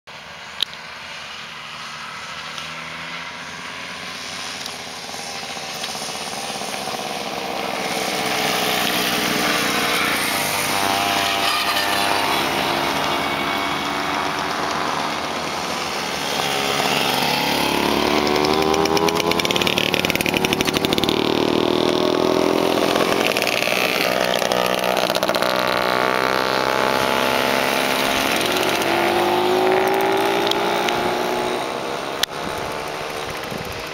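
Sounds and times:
mopeds buzzing past: 0.4s - 33.9s.

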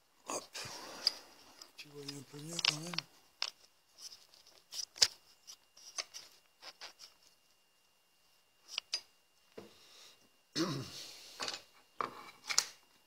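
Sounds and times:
tools handled on a workbench: 0.9s - 7.2s, 11.4s - 12.8s.

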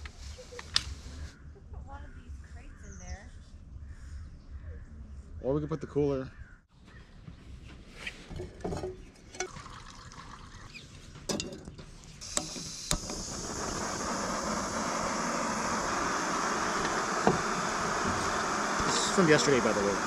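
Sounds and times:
clicks and knocks of pot: 8.3s - 9.9s, 11.2s - 12.6s
gas burner hissing: 12.0s - 20.0s.

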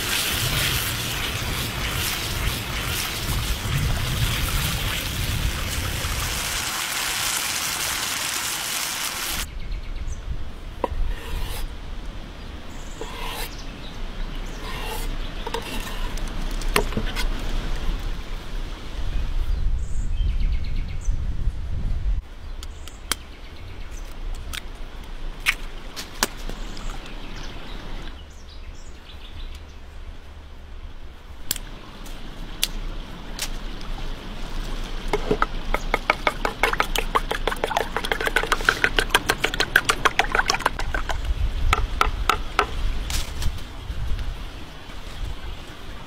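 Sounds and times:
eggs cracked on a bowl: 35.2s - 41.2s
fork beating eggs: 35.2s - 42.1s.

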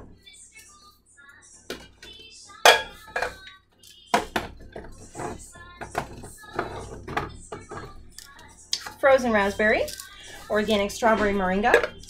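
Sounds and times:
metal tins knocking and clinking: 2.7s - 3.4s, 11.3s - 12.0s.

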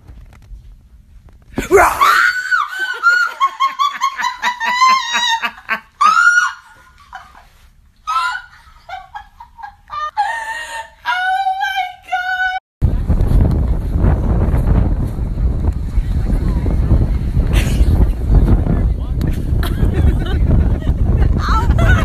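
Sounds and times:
high-pitched shrieking laughter: 1.7s - 7.5s, 8.1s - 11.3s.

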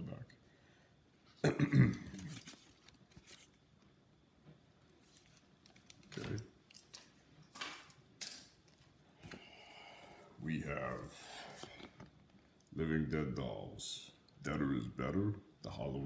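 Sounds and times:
packaging crinkles: 2.2s - 3.6s
rustling of paper and bubble wrap: 2.3s - 3.6s.

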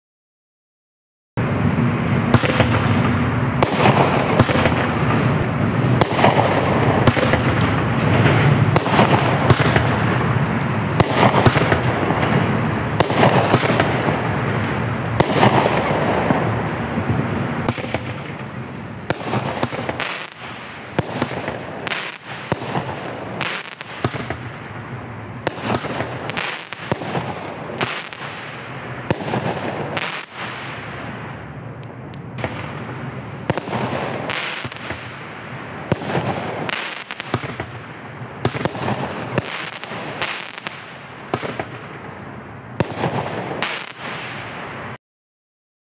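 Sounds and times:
fireworks bangs and crackle: 1.4s - 45.0s.

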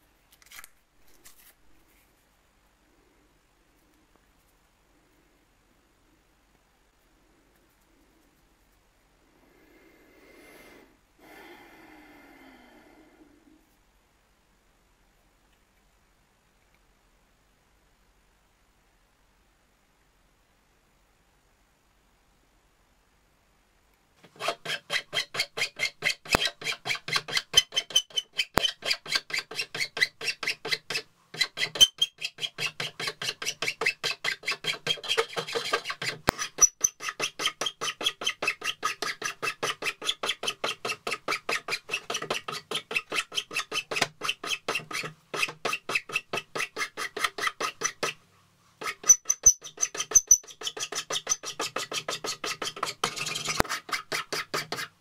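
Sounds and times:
steel file rasping on wood: 24.2s - 48.2s, 48.8s - 55.0s.

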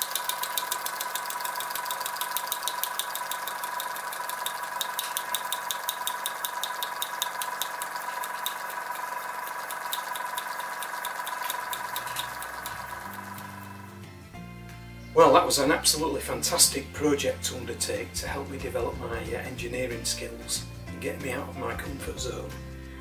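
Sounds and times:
air engine puffs and clicks: 0.0s - 13.9s
steady high hum: 0.0s - 15.0s
music: 12.0s - 23.0s.

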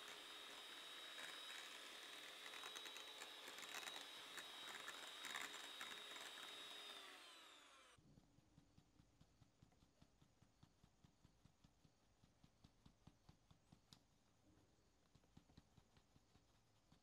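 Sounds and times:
electric hand mixer whining: 0.0s - 8.0s.

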